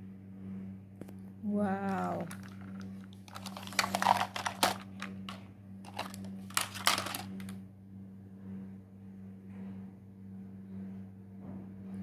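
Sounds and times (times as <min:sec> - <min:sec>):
steady low hum: 0:00.0 - 0:12.0
plastic toys clattering: 0:02.1 - 0:07.6.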